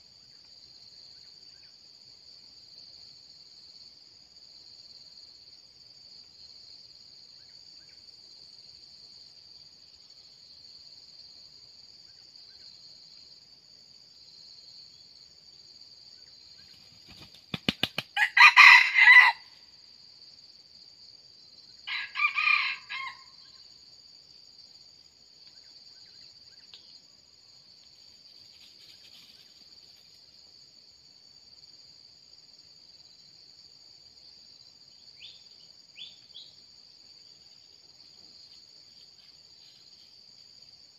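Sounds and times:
rooster wings flapping: 16.8 - 18.2
rooster crowing: 18.2 - 19.5, 21.8 - 23.4.

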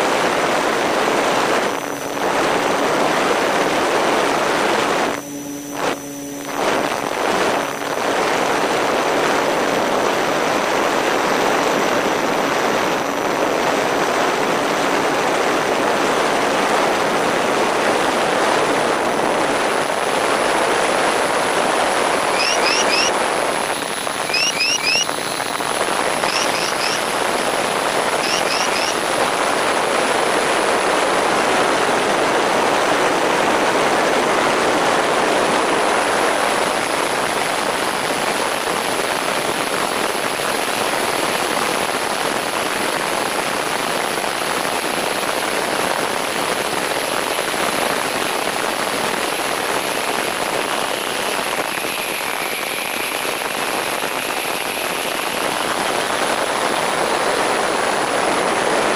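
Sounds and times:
wind and propeller noise: 0.0 - 58.9
faint whine: 0.2 - 10.6, 18.7 - 30.5.

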